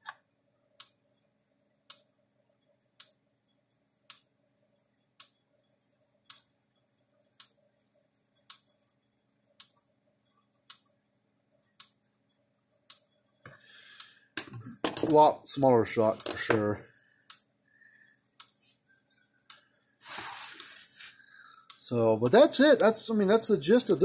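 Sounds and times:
faint steady hum: 0.0s - 24.0s.

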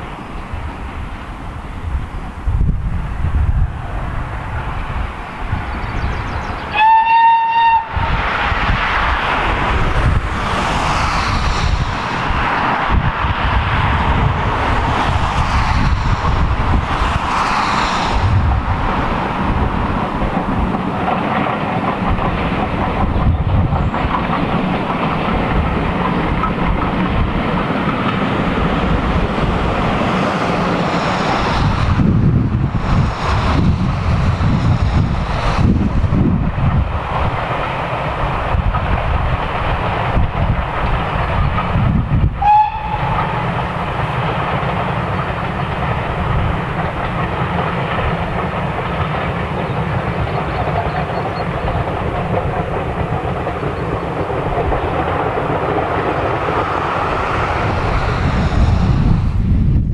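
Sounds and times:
steam locomotive whistle: 6.7s - 8.0s, 42.4s - 43.5s.

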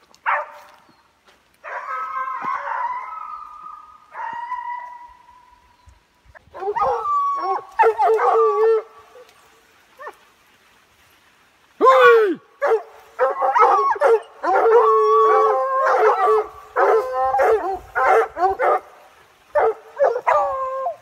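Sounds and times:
hounds baying and howling: 1.6s - 5.6s, 6.4s - 9.4s, 12.6s - 21.0s.

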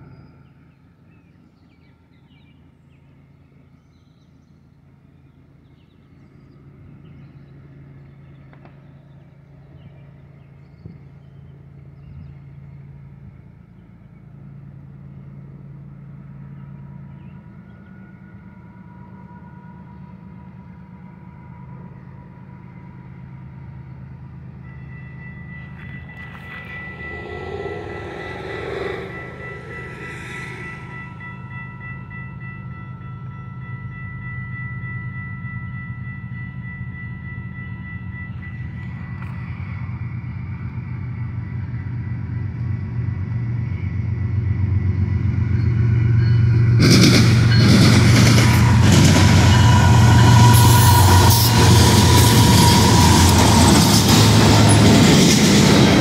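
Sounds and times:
locomotive engines rumbling: 6.6s - 56.0s
steady high tones: 24.7s - 38.8s, 47.4s - 56.0s.

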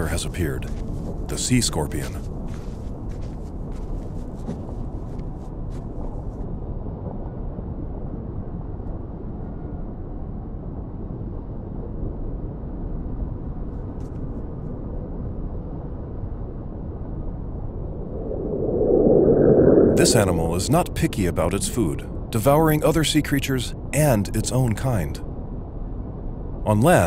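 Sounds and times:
underwater rumble and wash: 14.8s - 22.4s.

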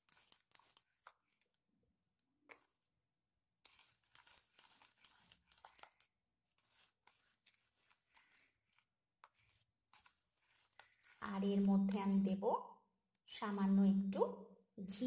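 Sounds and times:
spoon scraping plastic bowl: 0.0s - 1.6s, 2.5s - 2.8s, 3.6s - 12.4s.

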